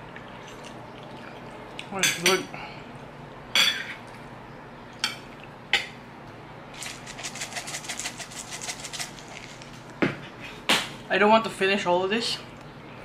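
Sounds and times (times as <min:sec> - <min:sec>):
cheese shaker rattling: 0:06.7 - 0:09.8.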